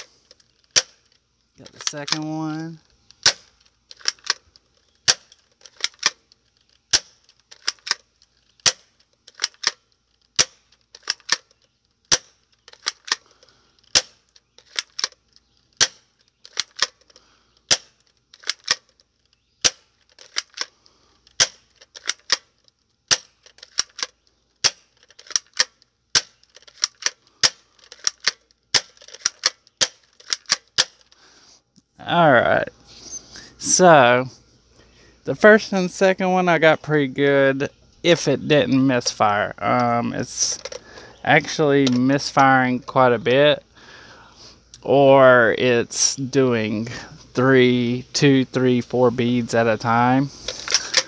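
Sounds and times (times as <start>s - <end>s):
person talking: 1.6s - 2.8s, 32.0s - 32.8s, 33.4s - 34.4s, 35.3s - 43.6s, 44.8s - 51.0s.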